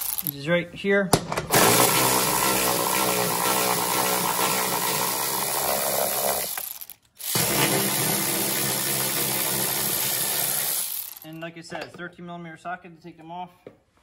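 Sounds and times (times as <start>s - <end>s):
electric ratchet running: 0.0s - 0.3s, 1.5s - 11.4s.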